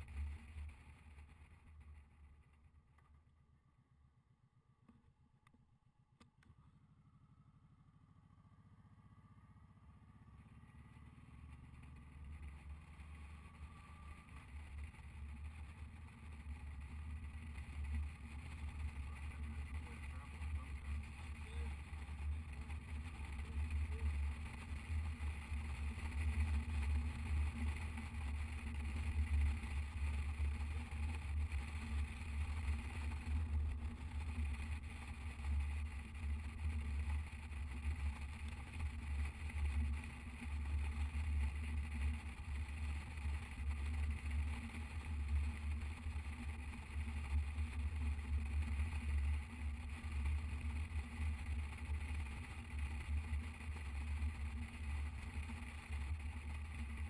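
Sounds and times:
motorcycle engine running: 0:00.0 - 0:02.6, 0:06.6 - 0:57.0.

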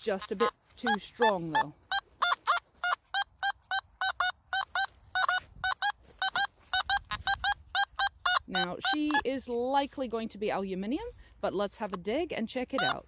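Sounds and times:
metal detector beeps: 0:00.2 - 0:09.3, 0:12.8 - 0:13.0.

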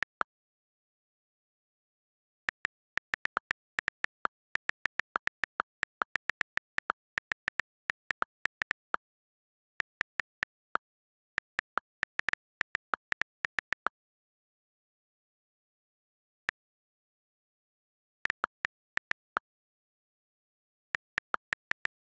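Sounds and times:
on-screen keyboard clicks: 0:02.5 - 0:09.0, 0:09.8 - 0:13.9, 0:18.3 - 0:19.4, 0:21.0 - 0:22.0.

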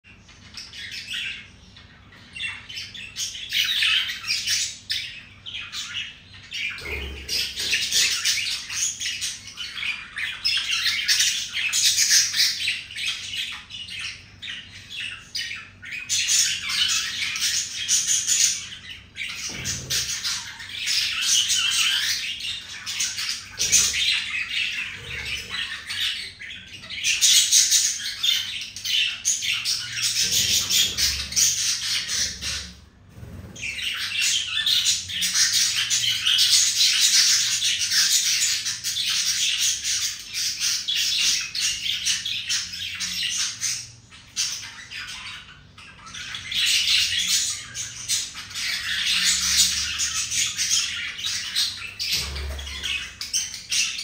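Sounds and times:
budgerigar chattering and warbling: 0:00.4 - 0:54.0.

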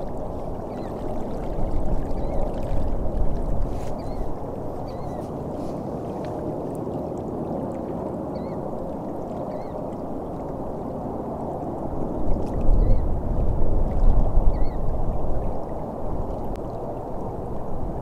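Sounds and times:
wind noise on microphone: 0:00.0 - 0:18.0
small waves lapping on gravel: 0:03.0 - 0:06.8.

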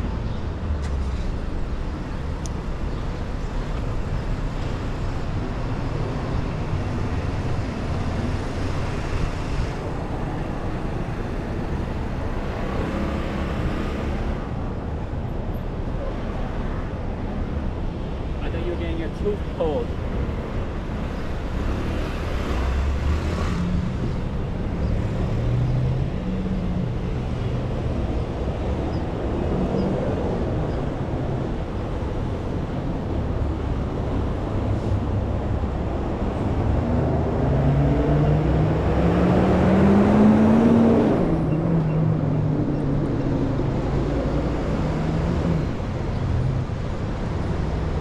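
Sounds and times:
rumble of passing cars: 0:00.0 - 0:48.0
vehicle engine accelerating past: 0:36.5 - 0:41.6.

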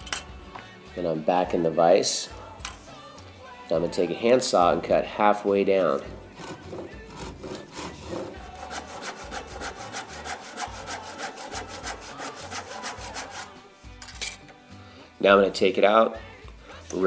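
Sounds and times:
handsaw cutting wood: 0:06.3 - 0:13.6.

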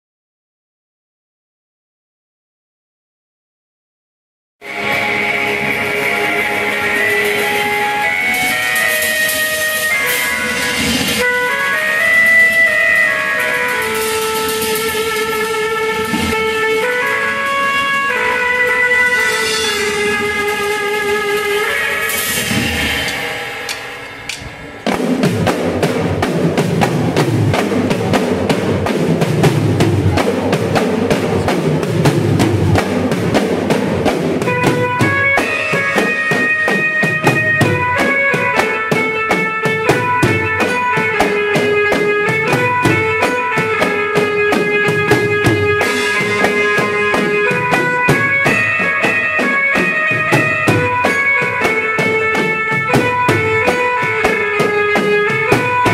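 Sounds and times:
banjo melody: 0:04.6 - 0:22.5, 0:25.8 - 0:55.9
dhol drums fast rhythm: 0:24.8 - 0:55.9.

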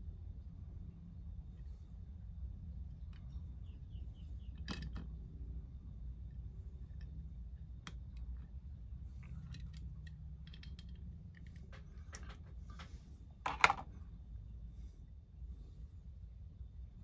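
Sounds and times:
low steady hum: 0:00.0 - 0:17.0
hands handling toy parts: 0:07.8 - 0:13.9.

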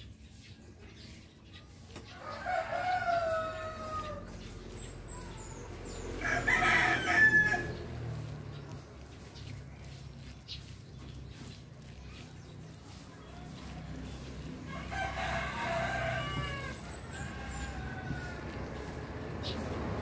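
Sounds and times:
rooster crowing: 0:02.2 - 0:04.3, 0:06.2 - 0:07.8, 0:14.7 - 0:18.8.

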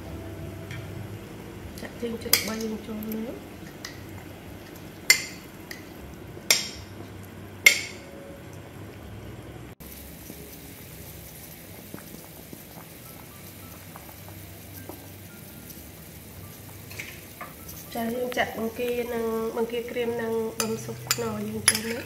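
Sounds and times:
water boiling in a pot: 0:00.0 - 0:22.0
metal utensil clinking on dishes: 0:20.6 - 0:22.0.

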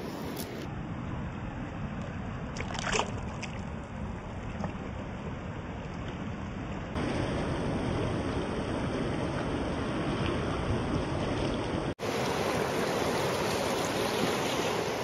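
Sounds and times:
river rushing: 0:11.8 - 0:15.0.

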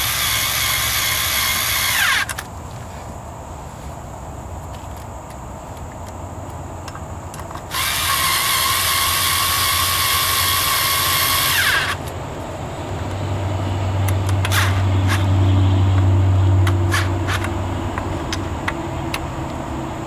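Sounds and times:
cordless drill running: 0:00.0 - 0:02.3, 0:07.7 - 0:12.0.

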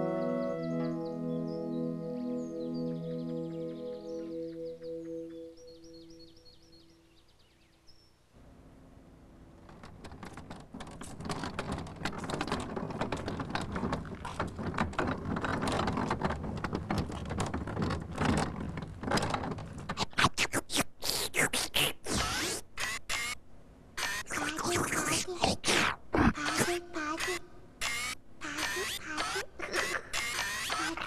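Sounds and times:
toy vacuum cleaner crackling: 0:11.0 - 0:23.4, 0:24.0 - 0:31.0.

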